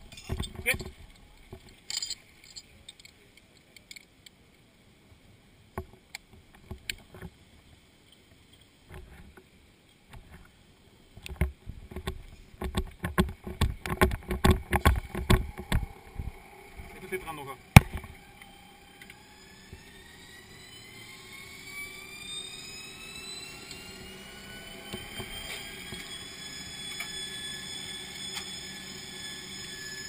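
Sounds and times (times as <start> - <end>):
camera thumps and rattles: 0.0 - 2.6, 11.2 - 16.3, 17.8 - 18.2
scattered clicks and knocks: 11.2 - 15.9.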